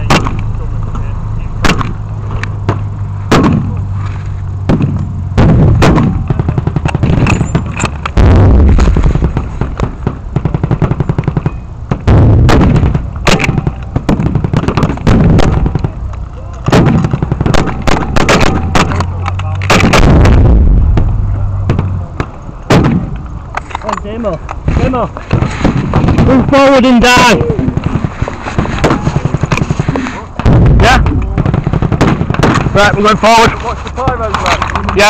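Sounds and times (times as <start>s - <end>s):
loud low rumbling: 0.0s - 23.5s, 24.4s - 34.9s
blank gunfire shots: 1.6s - 2.0s, 2.7s - 3.8s, 4.6s - 16.0s, 16.6s - 23.1s, 24.7s - 33.2s.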